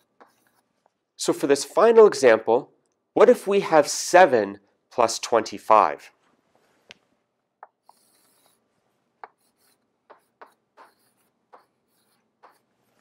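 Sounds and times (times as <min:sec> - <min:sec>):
chalk strokes on chalkboard: 0:00.0 - 0:00.7, 0:07.8 - 0:13.0
scratchy chalk hiss: 0:00.0 - 0:00.9, 0:07.7 - 0:13.0.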